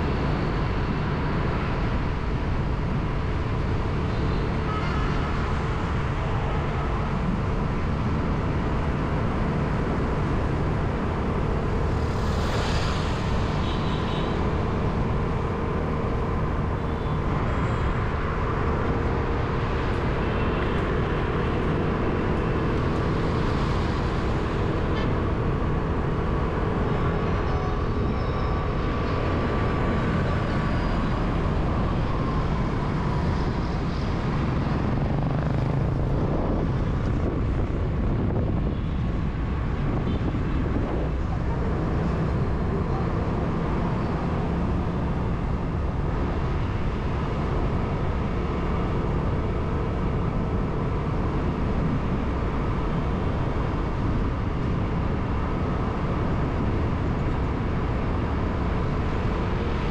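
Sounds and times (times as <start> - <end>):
road traffic rumble: 0.0 - 59.9.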